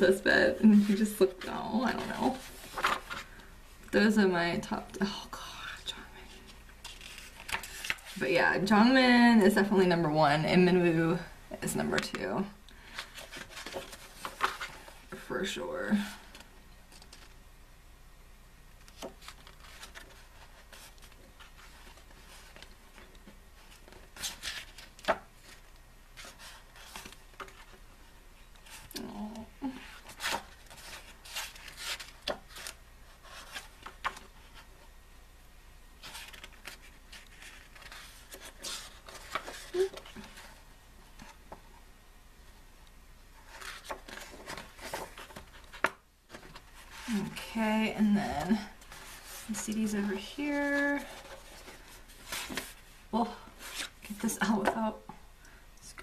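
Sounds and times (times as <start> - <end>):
paper pages rustling: 0.6 - 3.5, 6.2 - 8.2, 12.8 - 15.2, 16.2 - 17.4, 18.8 - 27.8, 29.9 - 34.9, 36.0 - 41.6, 43.4 - 52.9.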